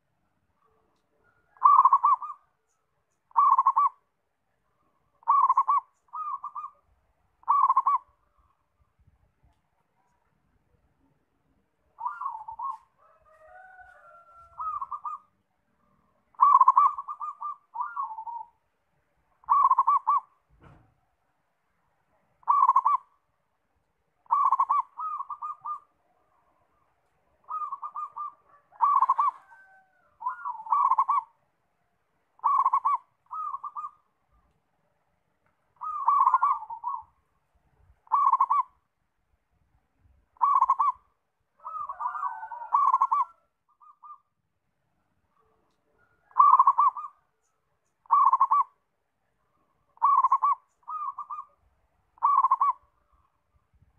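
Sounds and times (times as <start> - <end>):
dove cooing: 0.6 - 2.6, 3.3 - 4.0, 5.1 - 8.4, 11.9 - 15.4, 16.3 - 18.6, 19.4 - 20.8, 22.4 - 23.2, 24.2 - 31.4, 32.4 - 34.5, 35.8 - 37.2, 38.0 - 38.8, 40.4 - 44.3, 45.4 - 47.4, 48.0 - 48.8, 49.8 - 51.6, 52.2 - 53.4.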